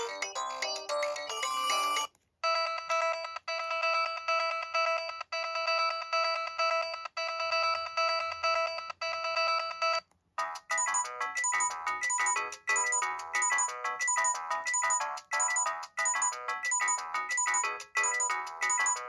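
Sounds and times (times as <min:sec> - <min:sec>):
electronic ringtone melody: 0:00.0 - 0:19.0
rapid electronic alarm beeps: 0:10.8 - 0:19.0.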